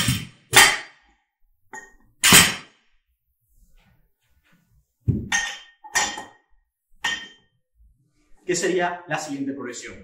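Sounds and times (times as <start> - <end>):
barbell knocking on floor mat: 5.1 - 5.5.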